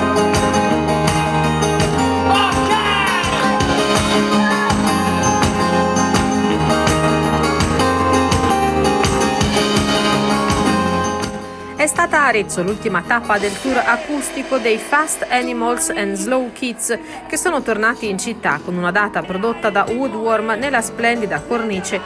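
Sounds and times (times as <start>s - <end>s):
rock band playing acoustic set: 0.0s - 11.8s.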